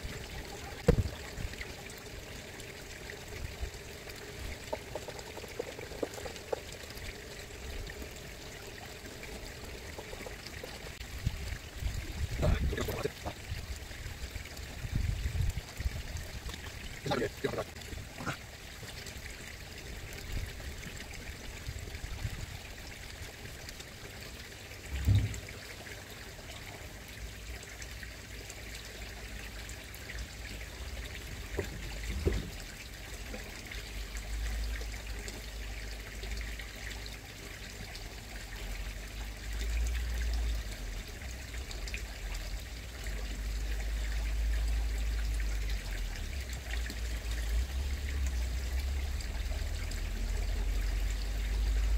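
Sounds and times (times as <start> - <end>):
water trickling in a pond: 0.0 - 51.9
dull thumps: 0.8 - 1.3
low rumble: 24.9 - 25.4.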